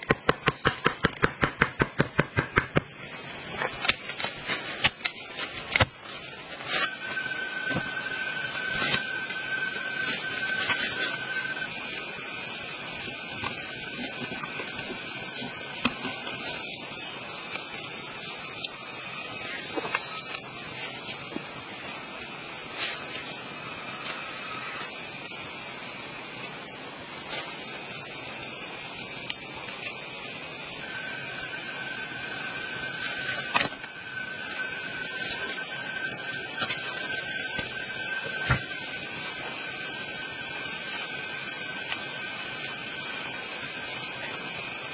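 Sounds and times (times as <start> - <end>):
insects droning: 0.0 - 44.9.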